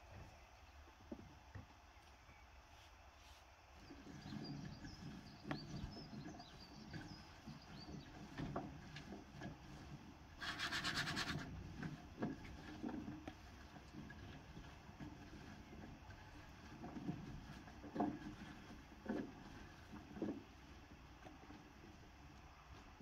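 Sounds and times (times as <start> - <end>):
faint bird chirps: 1.9 - 2.6, 3.8 - 8.3.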